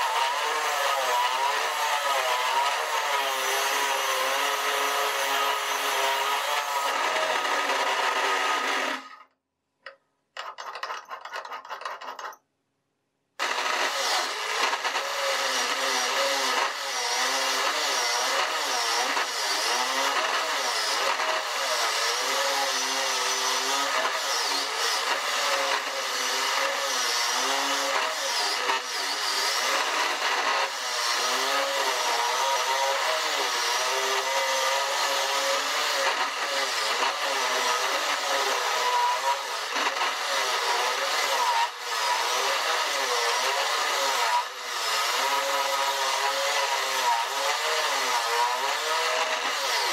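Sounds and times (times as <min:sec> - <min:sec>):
grinder motor whining: 0:00.0 - 0:09.3, 0:13.4 - 0:49.9
chisel scraping spinning wood: 0:10.4 - 0:12.4.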